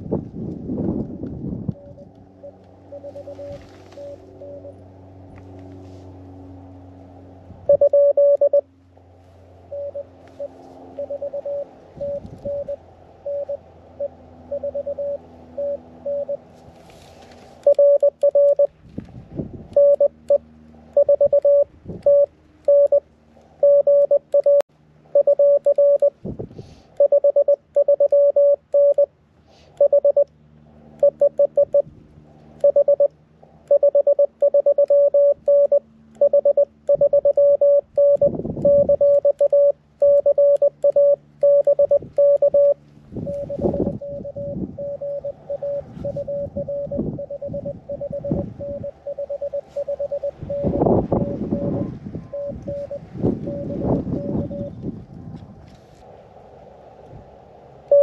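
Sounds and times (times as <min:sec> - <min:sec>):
morse code beeps: 0:01.7 - 0:04.8, 0:07.6 - 0:08.7, 0:09.7 - 0:16.4, 0:17.6 - 0:18.7, 0:19.7 - 0:23.0, 0:23.6 - 0:26.2, 0:27.0 - 0:29.1, 0:29.8 - 0:30.3, 0:31.0 - 0:31.9, 0:32.6 - 0:54.8.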